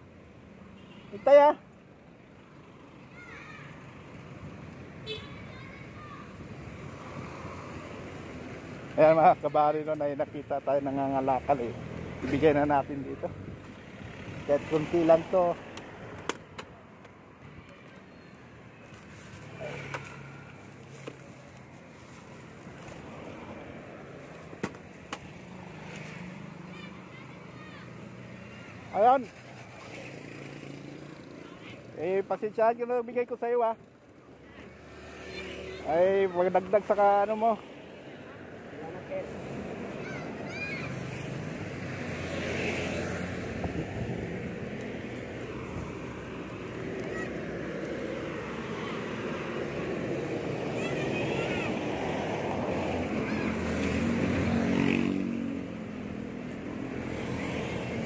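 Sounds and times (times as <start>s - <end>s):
road traffic rumble: 0.0s - 58.0s
vehicle passing: 6.8s - 16.2s, 19.4s - 20.9s, 34.6s - 58.0s.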